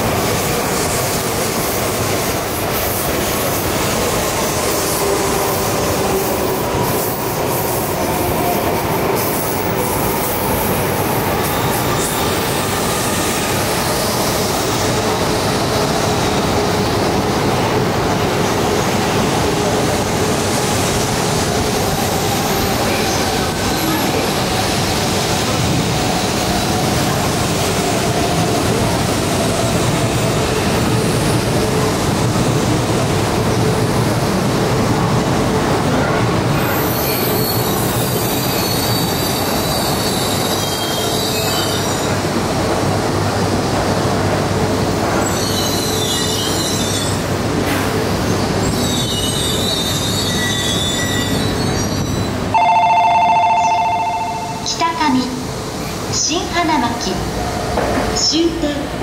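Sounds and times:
high wheel squeal: 36.6 - 42.2, 45.2 - 47.3, 48.4 - 52.8.

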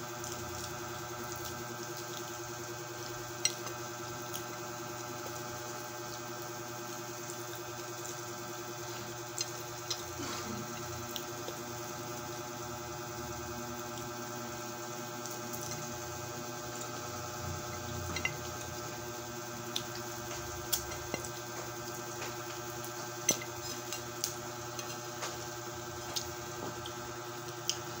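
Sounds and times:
steady hum: 0.0 - 28.0
chewing smacks: 0.2 - 2.4, 19.7 - 20.1.

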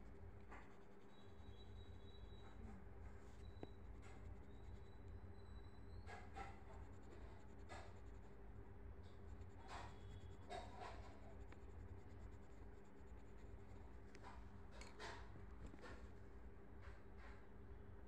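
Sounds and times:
steady low hum: 0.0 - 18.0
pencil scratching on paper: 0.4 - 2.4, 3.3 - 8.4, 9.0 - 15.2.

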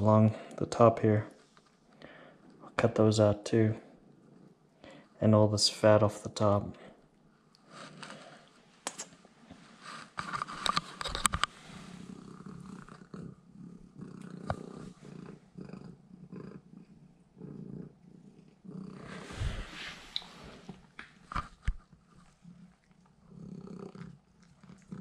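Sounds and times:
cat purring: 9.6 - 20.9, 21.8 - 25.0.

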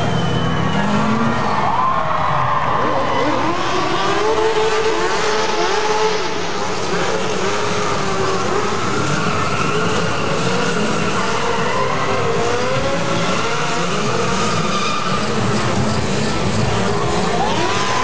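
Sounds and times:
engines revving hard: 0.0 - 18.0
tyre squeal: 8.0 - 18.0.

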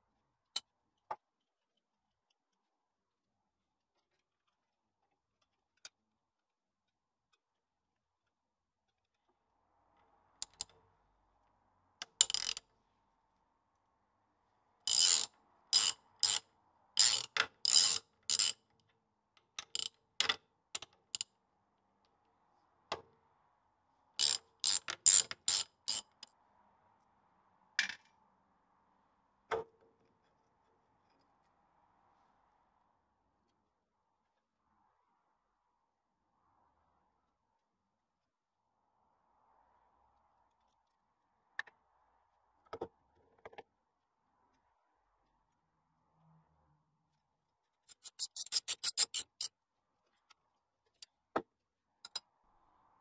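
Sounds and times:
socket ratchet clicking: 12.0 - 12.6, 14.9 - 16.4, 17.0 - 18.6, 19.6 - 20.0, 24.2 - 26.2, 47.9 - 49.5.

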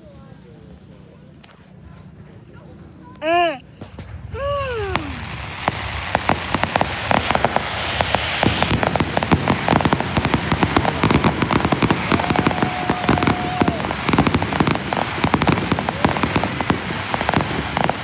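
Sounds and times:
fireworks crackling and popping: 3.7 - 18.0.

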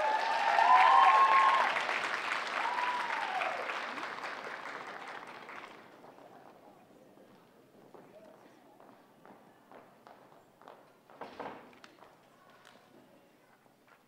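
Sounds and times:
crowd whooping: 0.0 - 5.2
audience applauding: 0.0 - 6.8.

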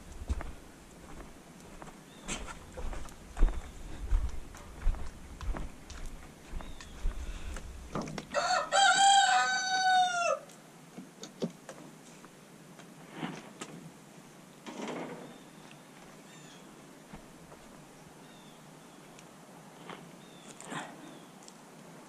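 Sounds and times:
wire fence knocks and rustles: 7.9 - 8.4
rooster crowing: 8.3 - 10.5.

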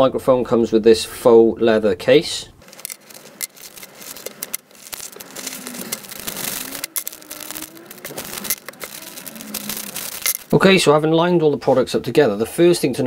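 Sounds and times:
rustling of plastic bag: 2.6 - 10.7.

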